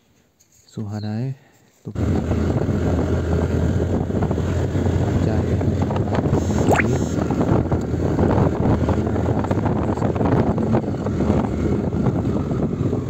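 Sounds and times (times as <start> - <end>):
wind buffeting microphone: 5.6 - 13.0
short rising whistle: 6.6 - 7.2.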